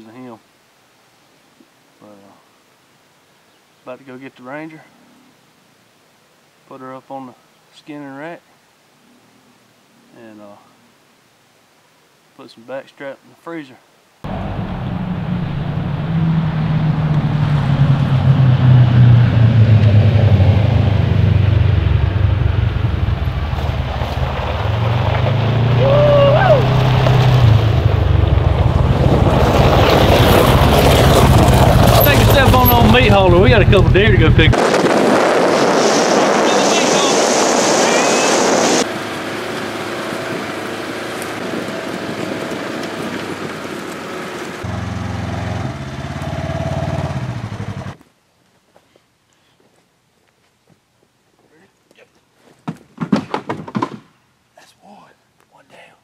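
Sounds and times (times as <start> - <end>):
vehicle engine running: 14.3 - 34.6
rushing noise: 14.3 - 42.9.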